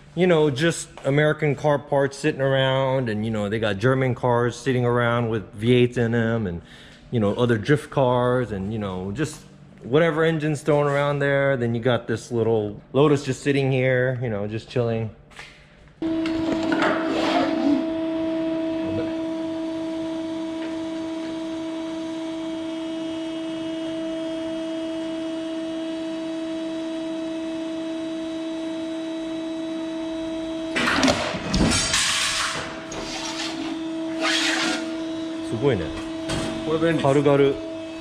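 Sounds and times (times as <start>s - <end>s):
metal shear humming: 27.0s - 38.0s.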